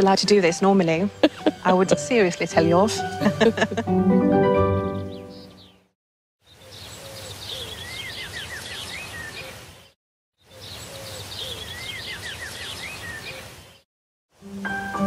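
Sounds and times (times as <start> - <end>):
low outdoor hiss: 0.0 - 3.8, 10.5 - 15.0
birds singing: 5.0 - 13.8.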